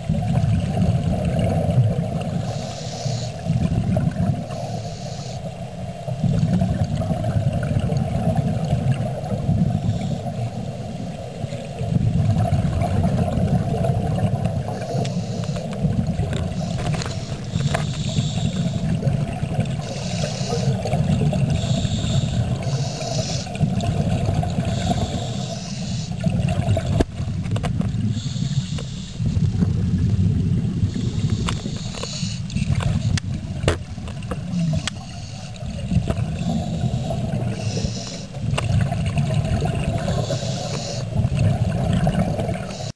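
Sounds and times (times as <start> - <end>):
exhaled bubbles rumbling: 0.0 - 4.8, 5.4 - 42.9
underwater regulator breathing: 2.3 - 5.6, 9.7 - 10.8, 14.4 - 23.8, 24.5 - 27.0, 28.0 - 29.7, 30.8 - 38.7, 39.8 - 41.4, 42.4 - 42.9.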